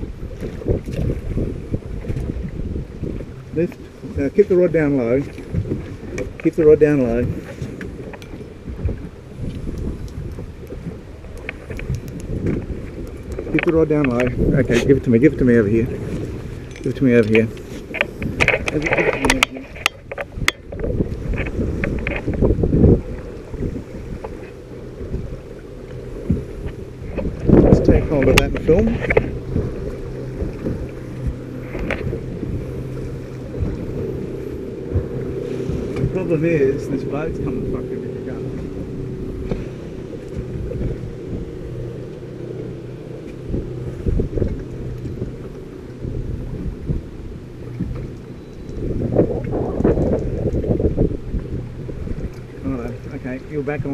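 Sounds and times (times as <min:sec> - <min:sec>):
water slapping against boat hull: 0:00.0 - 0:53.9
wind buffeting the microphone: 0:00.0 - 0:53.9
sharp clicks and knocks: 0:16.7 - 0:22.4
heavy low thumps: 0:26.1 - 0:48.1.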